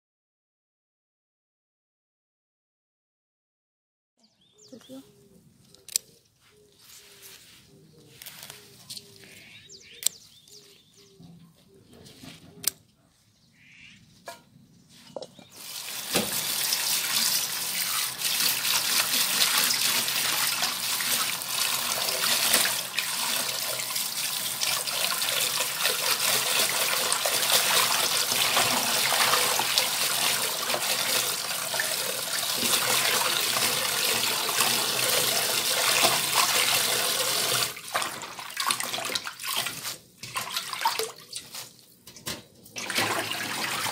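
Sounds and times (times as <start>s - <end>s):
tap water pouring into bowl: 15.6s - 41.2s.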